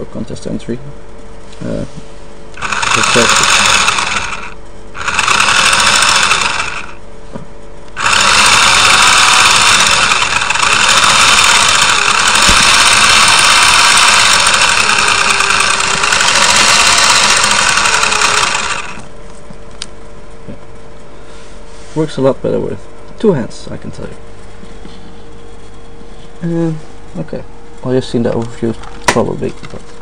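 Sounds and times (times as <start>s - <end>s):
small electric motor whining: 2.6s - 7.0s, 7.9s - 19.1s.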